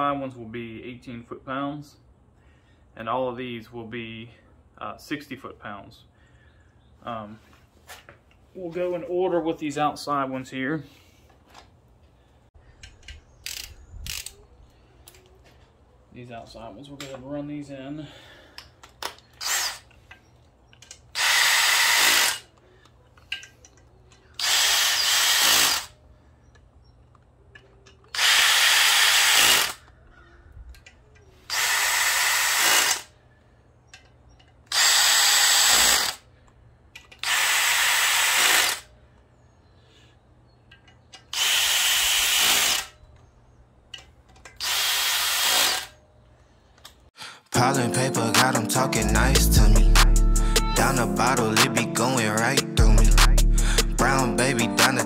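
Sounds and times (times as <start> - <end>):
cordless drill spinning bolts: 18.8 - 26.0, 27.9 - 29.9, 31.5 - 33.1, 33.9 - 36.2, 37.0 - 38.9, 41.0 - 42.9, 44.0 - 46.0.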